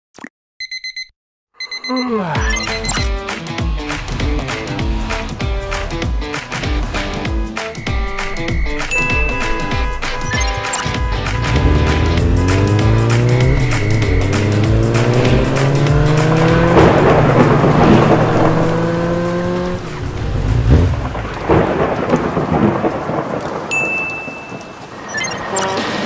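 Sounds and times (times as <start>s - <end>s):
heavy rain: 7.8s - 26.0s
motorcycle engine accelerating: 10.8s - 21.1s
thunder rumbles: 11.4s - 25.1s.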